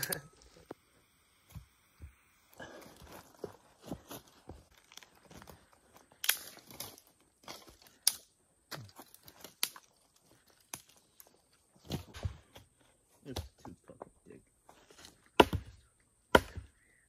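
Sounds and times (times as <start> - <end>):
sticks snapping: 6.1 - 7.0, 7.9 - 8.3, 9.2 - 10.0, 10.6 - 11.0.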